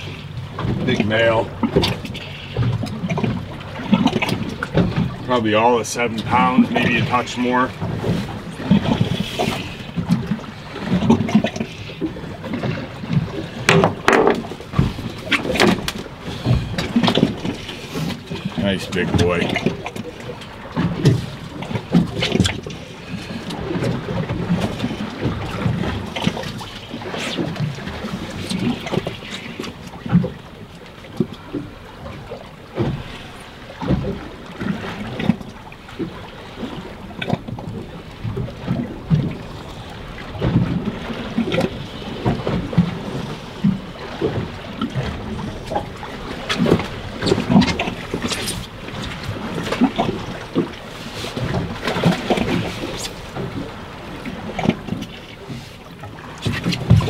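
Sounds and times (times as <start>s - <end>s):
water lapping against boat hull: 0.0s - 57.0s
knocks or splashes: 12.4s - 20.0s.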